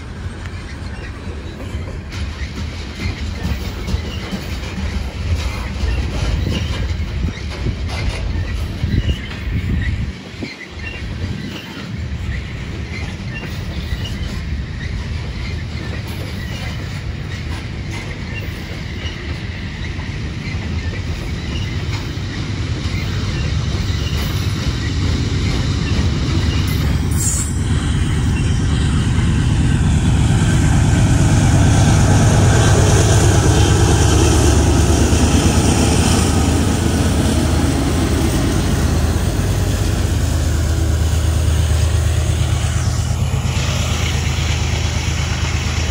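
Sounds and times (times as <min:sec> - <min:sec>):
train cars rumbling past: 0:00.0 - 0:45.9
wheels clattering on rails: 0:00.0 - 0:45.9
low rumble: 0:27.6 - 0:45.9.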